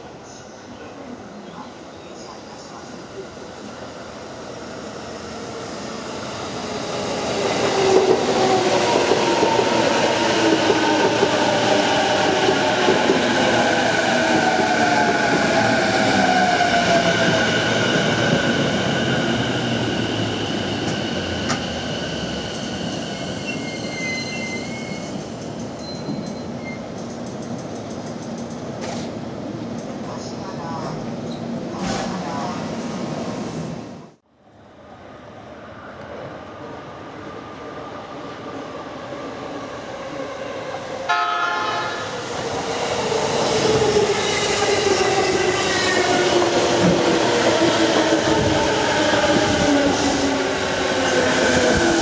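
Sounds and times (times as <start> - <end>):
electric train passing: 35.7 - 52.0.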